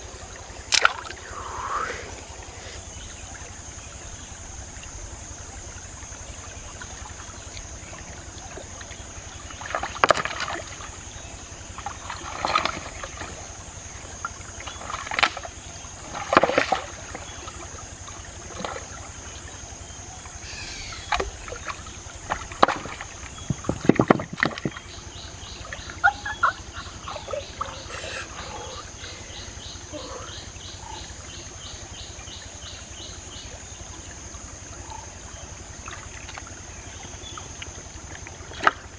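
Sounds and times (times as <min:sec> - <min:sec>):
hands splashing in stream: 0:00.0 - 0:02.8, 0:07.4 - 0:11.0, 0:11.7 - 0:13.6, 0:14.5 - 0:19.3, 0:21.0 - 0:25.0, 0:35.8 - 0:38.9
steady background hiss: 0:00.0 - 0:38.9
stones knocking in water: 0:09.6 - 0:10.8, 0:22.2 - 0:24.9.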